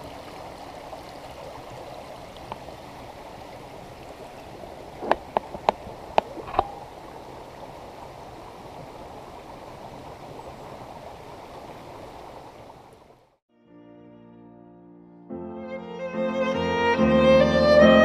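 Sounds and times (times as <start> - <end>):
stream running over rocks: 0.0 - 13.4.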